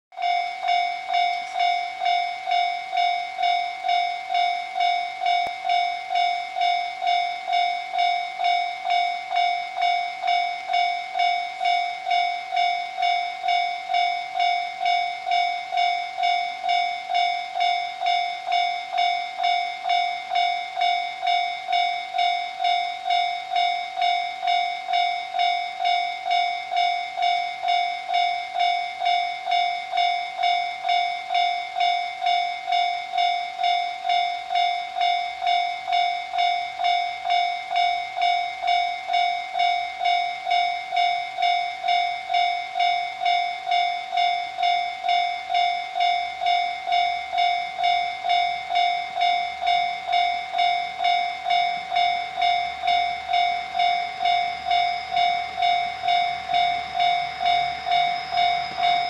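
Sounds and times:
level-crossing warning bell: 0.1 - 59.0.

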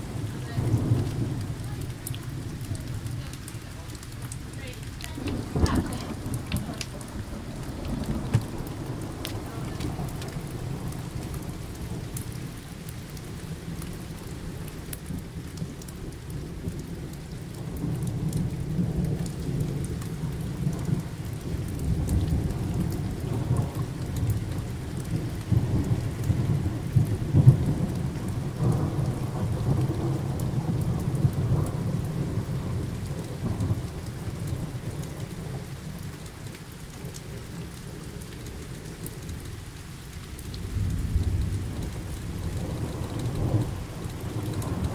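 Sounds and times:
thunder rolling: 0.0 - 11.6
steady rain: 0.0 - 44.9.

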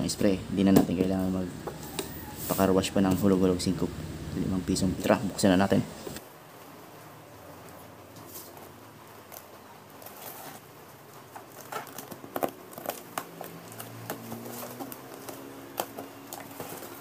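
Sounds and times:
cardboard scraping and rustling: 8.2 - 17.0
tape crackling and tearing: 8.3 - 17.0.

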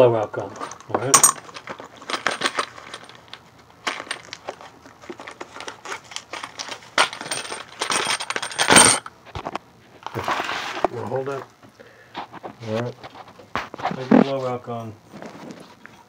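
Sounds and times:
small metal parts rattling: 0.4 - 9.1.

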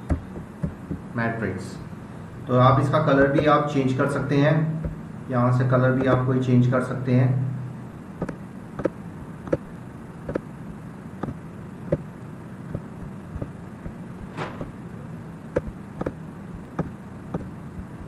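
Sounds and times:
steady low hum: 0.0 - 18.0
computer mouse clicking: 8.2 - 9.6.

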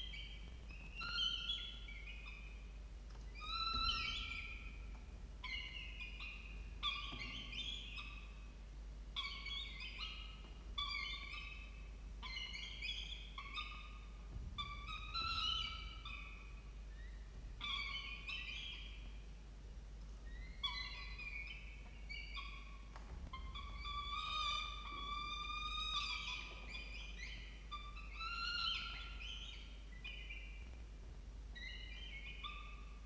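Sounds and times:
falcon chicks begging calls: 12.2 - 19.0, 23.3 - 30.4.

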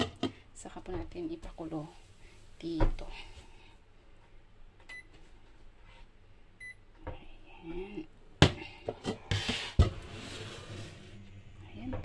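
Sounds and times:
electronic stove beep: 4.9 - 5.1, 6.6 - 6.8.

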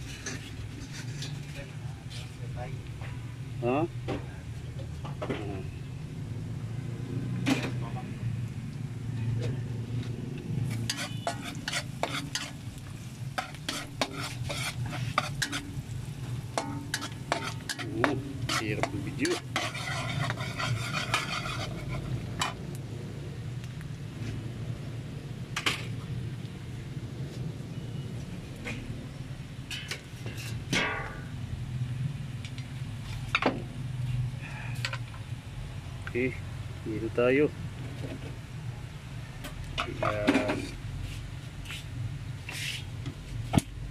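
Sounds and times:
onions sizzling in a wok: 9.7 - 24.1.

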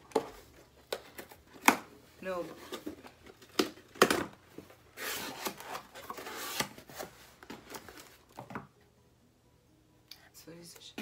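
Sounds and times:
packaging rustling and scraping: 0.1 - 8.4.

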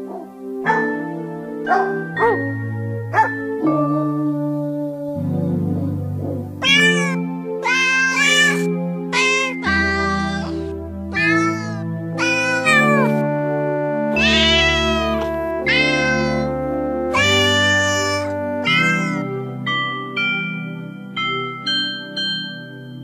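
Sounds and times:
melody of sampled cat meows: 6.6 - 13.3, 14.0 - 19.4
synthesized chords and bass: 11.8 - 21.5.

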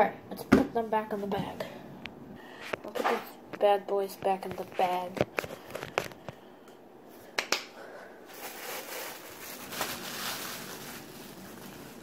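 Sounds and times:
plastic bag crinkling: 8.3 - 12.0.

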